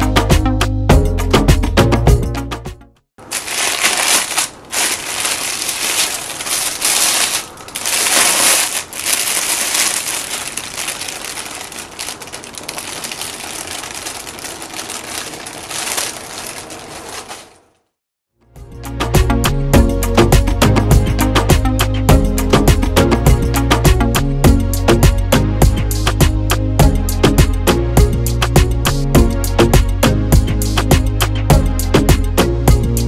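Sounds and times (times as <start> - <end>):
music: 0.0 - 3.1, 18.4 - 33.0
plastic bag crinkling: 3.2 - 17.8.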